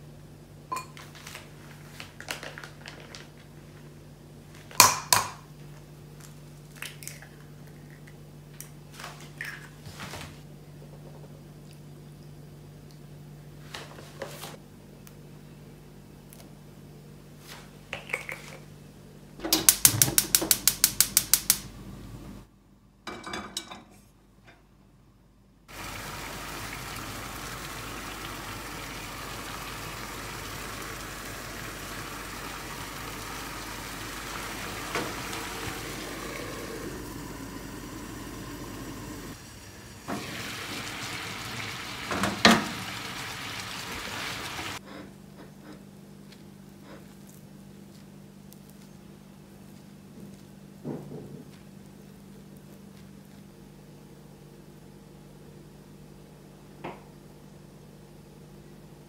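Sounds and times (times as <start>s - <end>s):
frying pan sizzling: 25.7s - 44.8s.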